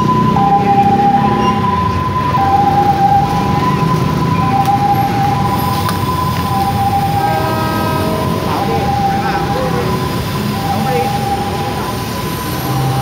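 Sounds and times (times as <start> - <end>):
diesel locomotive idling: 0.0 - 13.0
level crossing alarm two tones: 0.0 - 13.0.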